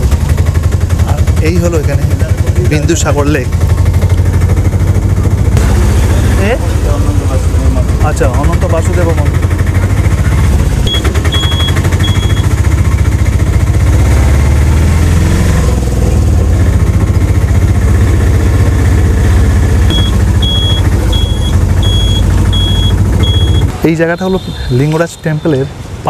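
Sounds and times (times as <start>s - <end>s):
car engine rumbling: 0.0s - 26.0s
reversing alarm beeps: 10.9s - 12.5s, 19.9s - 23.7s.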